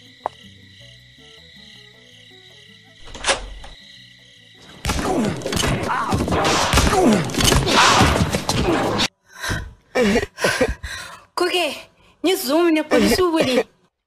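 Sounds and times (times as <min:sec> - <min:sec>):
cartoon scuffle thuds and crashing: 0:04.8 - 0:09.1
groaning voice: 0:04.9 - 0:09.1.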